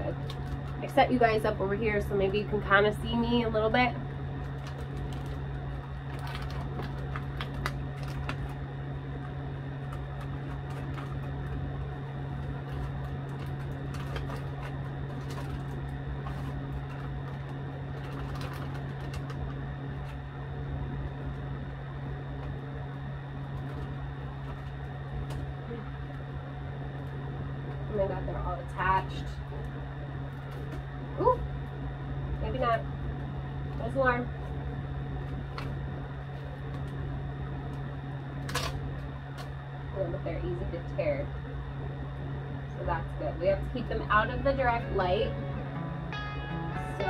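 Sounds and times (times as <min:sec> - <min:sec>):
steady mechanical hum: 0:00.0 - 0:47.0
paper crinkling and rustling: 0:04.4 - 0:08.6, 0:09.7 - 0:20.2.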